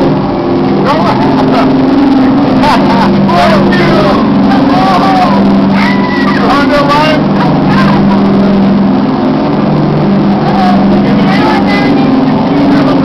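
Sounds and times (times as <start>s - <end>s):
boat engine droning: 0.0s - 13.0s
faint voices: 0.6s - 13.0s.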